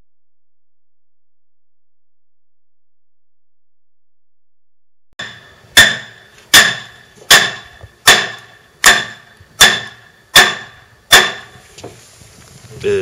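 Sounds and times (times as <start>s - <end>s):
hammer striking metal: 5.2s - 11.6s.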